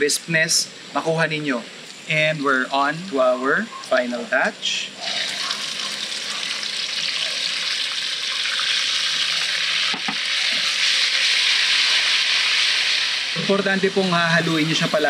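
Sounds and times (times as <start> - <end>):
meat sizzling in hot oil: 4.9 - 15.0.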